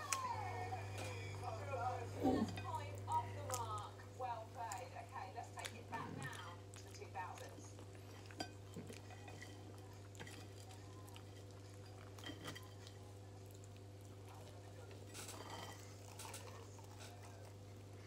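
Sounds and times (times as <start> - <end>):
person eating: 5.6 - 18.0.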